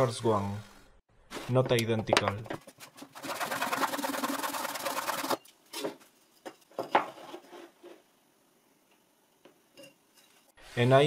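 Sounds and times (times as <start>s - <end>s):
light wooden knocks: 1.6s - 2.7s.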